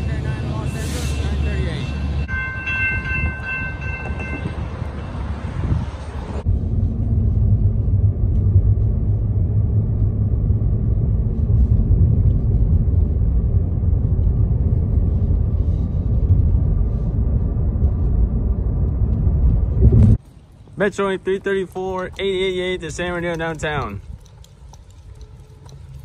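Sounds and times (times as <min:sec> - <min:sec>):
car road rumble inside cabin: 0:05.6 - 0:20.2.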